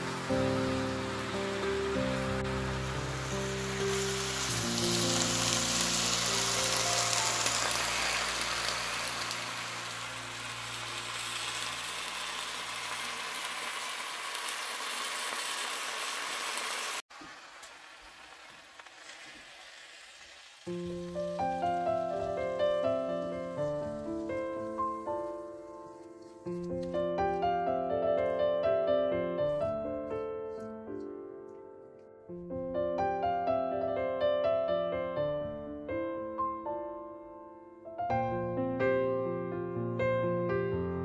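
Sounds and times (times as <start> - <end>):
background music: 0.0 - 10.6, 20.7 - 41.0
piano music: 0.0 - 13.0, 20.7 - 41.0
faint hiss: 0.0 - 26.6
cabbage sizzling in a wok: 0.0 - 26.8.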